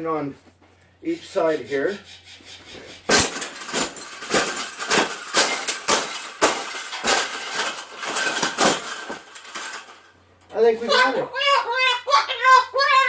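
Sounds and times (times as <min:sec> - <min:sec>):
wire cage bangs and clanks: 0:02.9 - 0:10.2.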